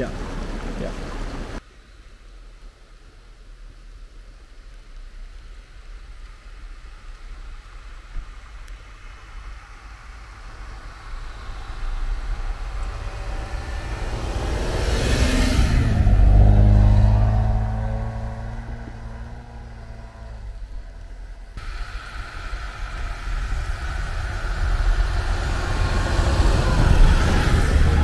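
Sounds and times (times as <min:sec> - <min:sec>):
vehicle engine passing by: 0:09.9 - 0:28.0
tyres hissing through snow: 0:21.6 - 0:28.0.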